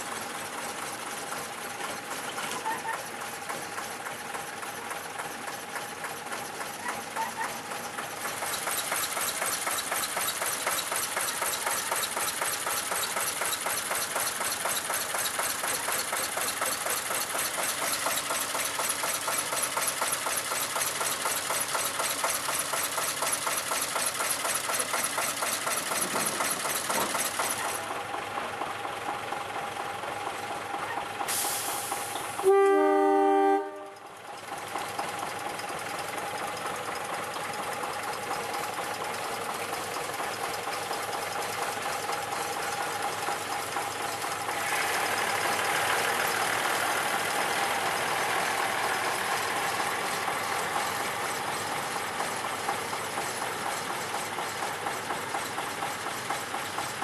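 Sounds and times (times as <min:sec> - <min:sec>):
diesel locomotives idling: 0:00.0 - 0:57.0
locomotive air horn chord: 0:32.4 - 0:34.1.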